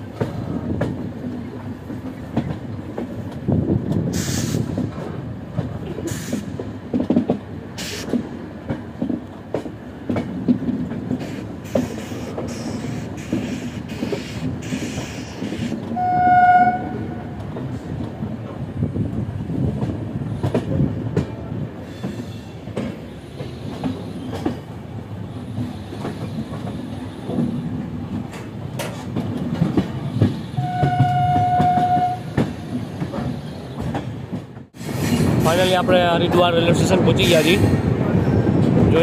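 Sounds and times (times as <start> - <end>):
train wheels clickety-clack on rails: 0.0 - 39.0
train horn: 16.0 - 17.4, 30.6 - 32.3.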